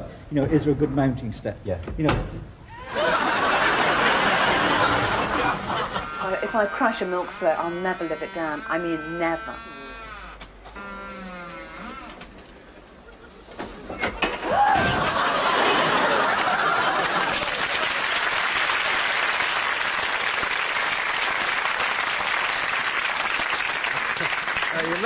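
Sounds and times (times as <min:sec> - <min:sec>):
audience laughing and applauding: 0:02.7 - 0:07.5, 0:14.4 - 0:25.0.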